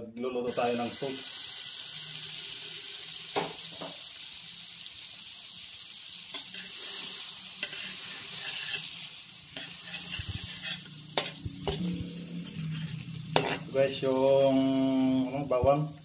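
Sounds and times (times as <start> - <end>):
butter sizzling in wok: 0.5 - 16.0
metal ladle scraping pan: 6.4 - 13.8.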